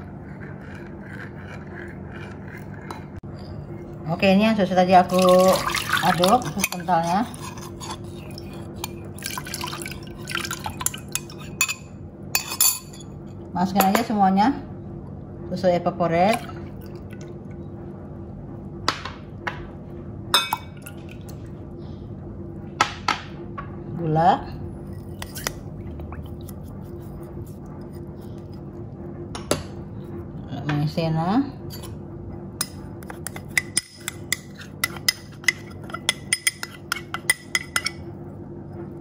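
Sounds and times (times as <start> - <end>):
steady low hum: 0.0 - 39.0
milk pouring: 5.1 - 6.7, 9.1 - 11.4
metal spoon clinking glass bowl: 10.8 - 13.1.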